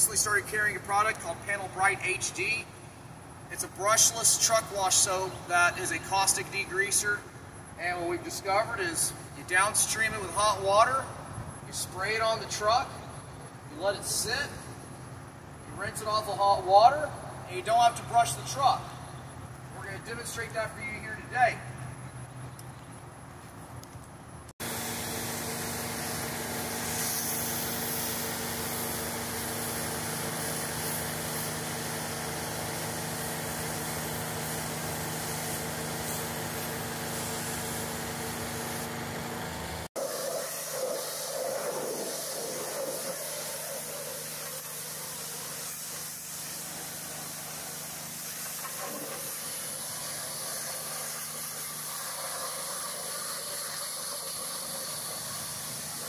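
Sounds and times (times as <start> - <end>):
engine running: 18.3 - 56.0
pressure washer spraying: 24.6 - 56.0.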